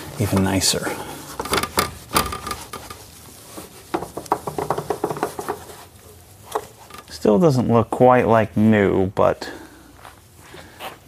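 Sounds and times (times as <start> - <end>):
glove rustling: 0.0 - 7.5
cloth rubbing plastic trim: 0.2 - 7.1.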